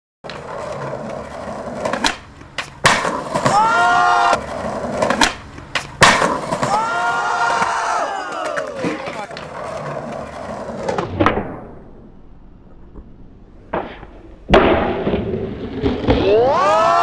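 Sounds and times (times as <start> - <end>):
skateboard clacks: 0.2 - 11.7
skateboard wheels rolling on concrete: 0.2 - 17.0.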